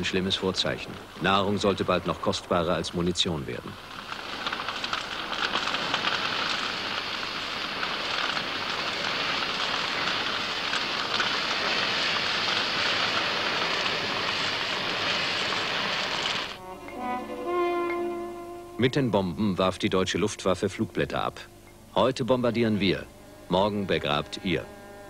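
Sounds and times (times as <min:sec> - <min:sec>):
large fire crackling: 0:00.0 - 0:18.2, 0:18.8 - 0:24.6.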